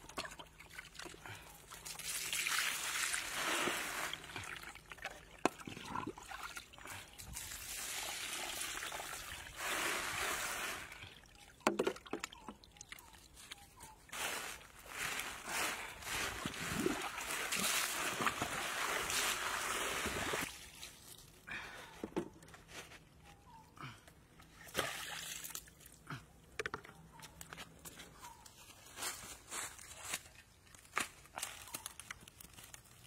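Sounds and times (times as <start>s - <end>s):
water splashing in a basket: 16.3s - 20.9s.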